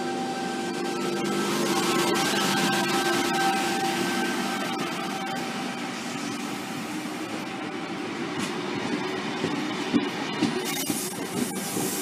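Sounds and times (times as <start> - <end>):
train wheels rumbling on rail: 3.8 - 12.0.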